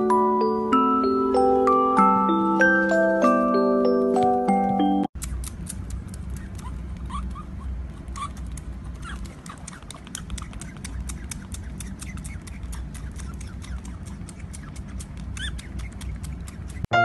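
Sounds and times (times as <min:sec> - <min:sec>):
otter suckling smacking clicks: 0:05.2 - 0:07.1, 0:08.1 - 0:16.9.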